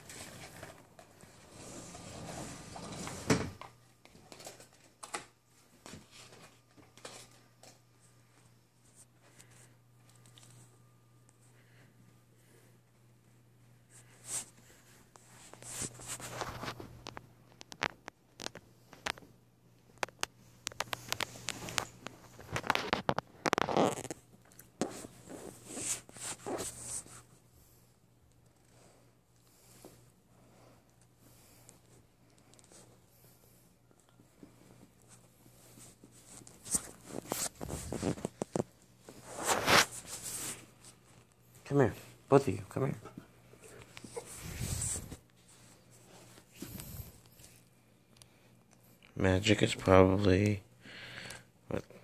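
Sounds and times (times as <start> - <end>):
dog rustling against phone: 13.9 - 19.2, 34.3 - 41.3, 43.6 - 47.6.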